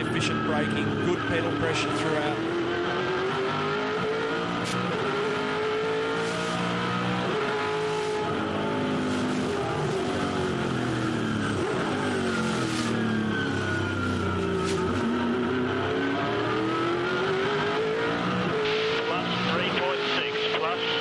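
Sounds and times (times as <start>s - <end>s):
race car engine revving: 0.0s - 21.0s.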